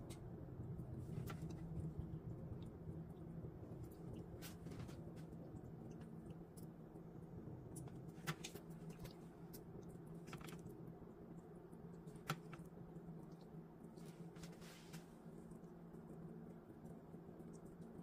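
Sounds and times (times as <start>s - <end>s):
steady low hum: 0.0s - 18.0s
small ticks: 15.4s - 18.0s.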